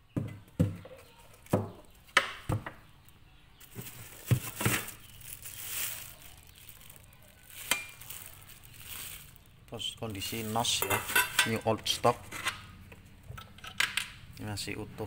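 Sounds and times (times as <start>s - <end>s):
plastic wrapping crinkling: 3.6s - 11.4s.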